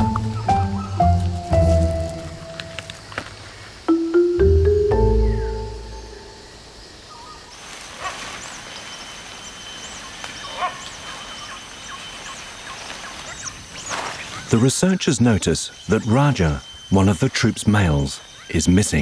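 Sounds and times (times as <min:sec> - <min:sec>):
high insect drone: 0:00.0 - 0:19.0
mallet percussion notes: 0:03.9 - 0:06.4
loud bird calls: 0:04.7 - 0:19.0.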